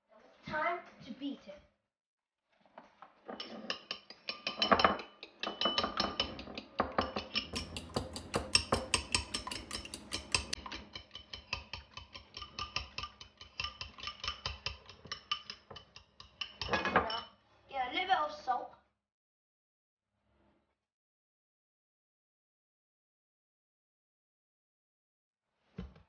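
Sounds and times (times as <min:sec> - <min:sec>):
fork clinking in ceramic bowl: 0:03.4 - 0:17.3.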